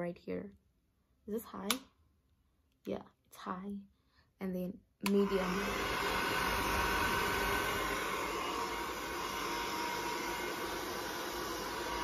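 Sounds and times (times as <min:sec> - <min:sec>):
hair dryer blowing: 0:05.0 - 0:12.0.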